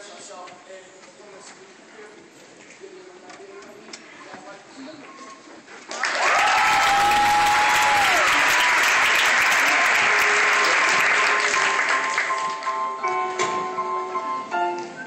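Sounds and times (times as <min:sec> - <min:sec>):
audience applauding and cheering: 0:05.9 - 0:13.1
long held call from crowd: 0:06.2 - 0:12.2.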